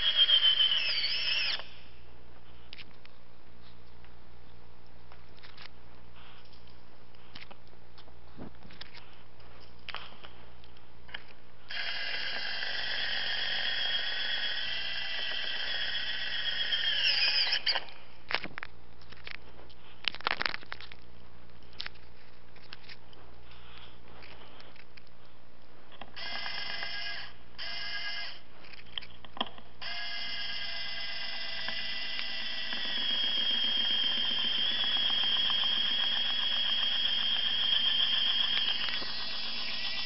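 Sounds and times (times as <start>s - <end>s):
power tool whining: 0.0s - 2.0s, 11.7s - 18.0s, 26.2s - 28.4s, 29.8s - 40.0s.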